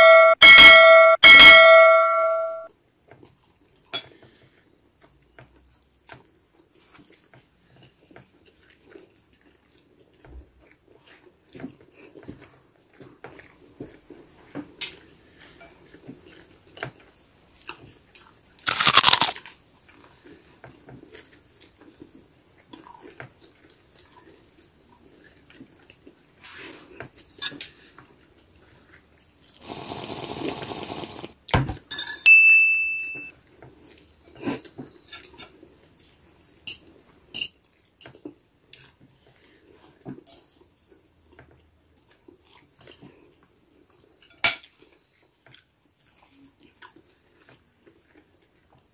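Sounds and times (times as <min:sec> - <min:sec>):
chewing toasted bread: 0:03.0 - 0:31.4, 0:33.4 - 0:48.9
loud crunch: 0:18.6 - 0:19.5
sipping from mug: 0:29.6 - 0:31.4.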